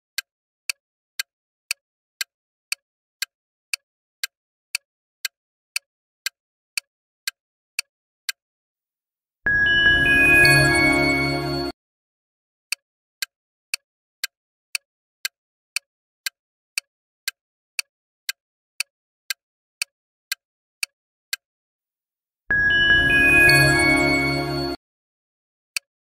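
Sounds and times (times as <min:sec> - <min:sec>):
jingly music: 0:09.5 - 0:11.7, 0:22.5 - 0:24.8.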